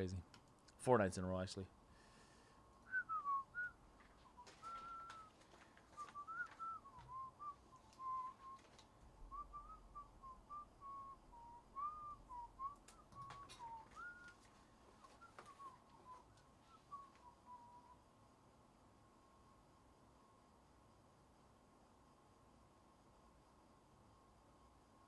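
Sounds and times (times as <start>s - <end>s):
person whistling: 2.9s - 18.0s
faint clicks: 12.7s - 16.5s.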